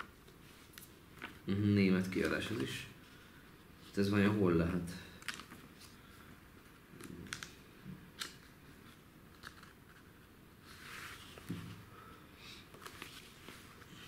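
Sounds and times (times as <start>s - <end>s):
paper crinkling and clicks: 9.3s - 10.0s
paper rustle: 12.7s - 14.0s.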